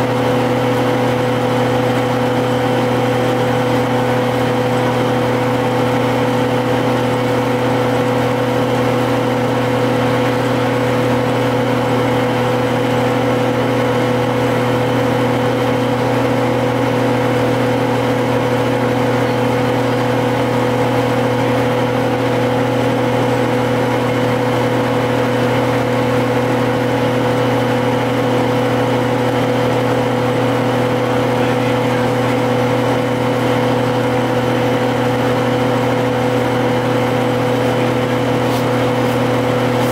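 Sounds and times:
diesel bus engine running: 0:00.0 - 0:39.9
road and drivetrain hum: 0:00.0 - 0:39.9.

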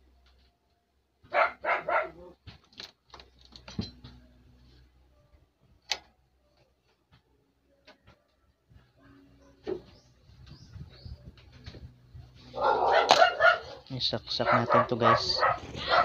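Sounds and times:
dog barking: 0:01.2 - 0:02.4, 0:12.5 - 0:16.0.

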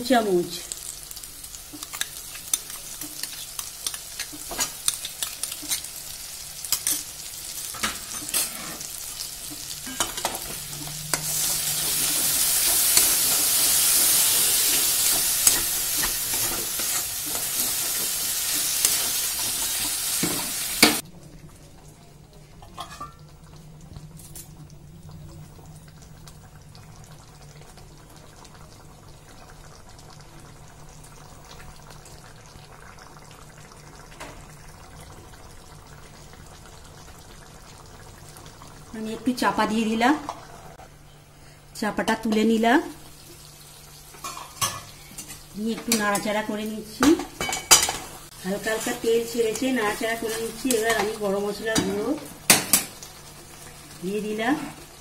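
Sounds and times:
masala sizzling in a pan: 0:00.0 - 0:55.0
curry simmering: 0:00.2 - 0:41.6
metal spatula scraping pan: 0:07.8 - 0:09.0.

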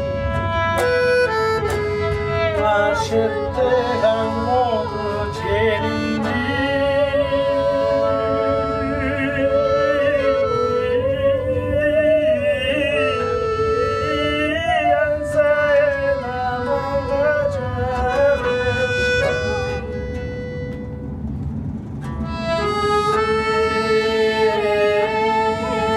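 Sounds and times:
plucked lute: 0:00.0 - 0:11.4, 0:12.8 - 0:25.9
accordion chords: 0:00.0 - 0:25.9
violin: 0:00.0 - 0:25.9
person singing with vibrato: 0:02.3 - 0:20.0, 0:23.0 - 0:25.9.

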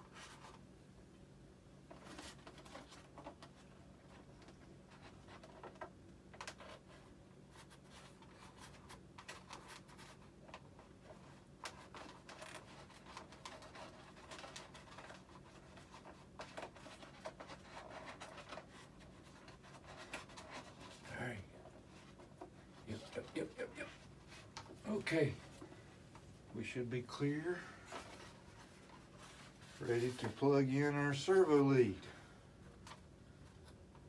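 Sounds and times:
low steady hum: 0:00.0 - 0:34.0
hand scratching and rubbing foam: 0:06.5 - 0:32.0.

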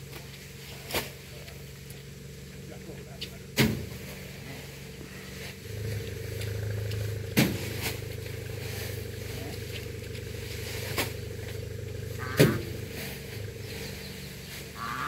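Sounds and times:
motor engine humming: 0:00.0 - 0:15.0.

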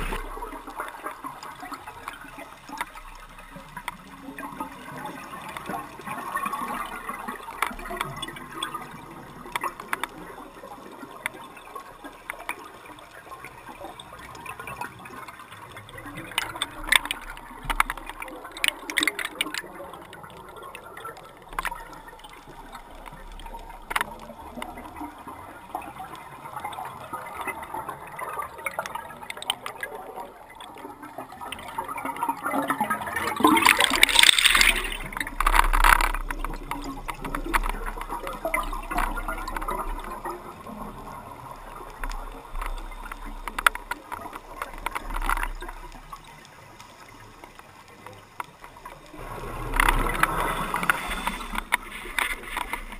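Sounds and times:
small clicks: 0:00.0 - 0:25.0, 0:33.3 - 0:52.9
bubbles gurgling underwater: 0:00.0 - 0:52.9.

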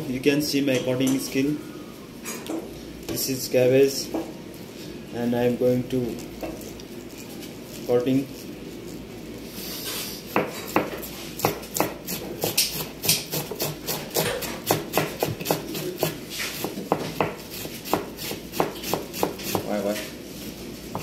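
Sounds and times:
knife shredding cabbage on board: 0:09.6 - 0:20.1.

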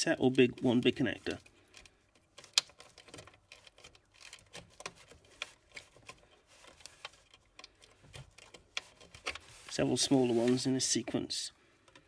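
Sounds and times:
plastic connectors clicking and rattling: 0:00.0 - 0:09.5.

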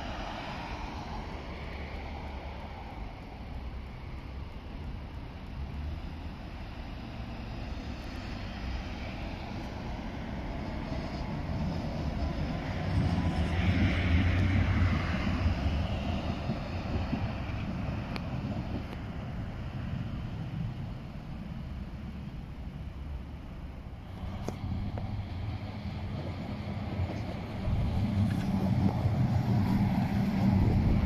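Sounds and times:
road traffic: 0:00.0 - 0:31.0
tram running past: 0:00.0 - 0:31.0.

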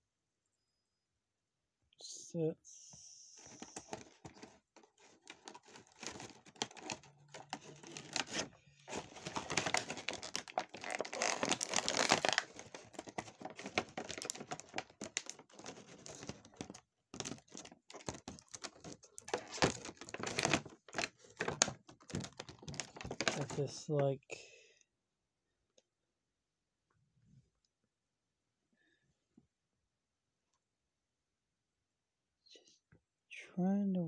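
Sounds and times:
plastic packaging crinkling: 0:03.4 - 0:23.6.

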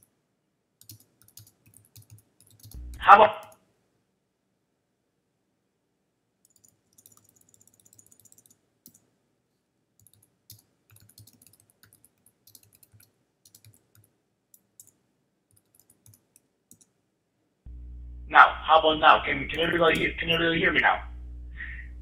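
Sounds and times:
faint irregular clicking: 0:10.0 - 0:17.0.

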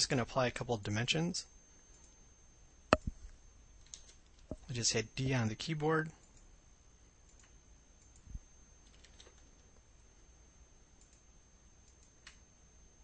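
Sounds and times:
faint steady high tone: 0:07.6 - 0:13.0
computer mouse clicks: 0:11.0 - 0:11.2.

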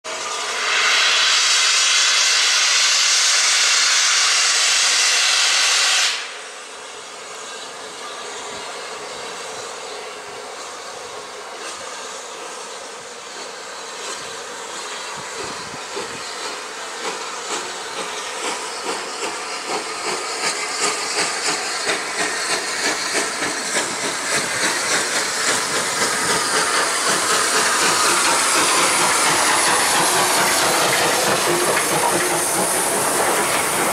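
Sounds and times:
loud hiss of steam: 0:00.1 - 0:33.9
steam locomotive exhaust beats: 0:00.1 - 0:33.9.

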